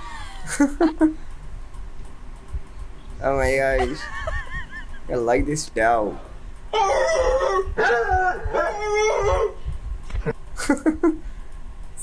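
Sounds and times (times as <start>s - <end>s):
dog howling: 6.7s - 9.6s.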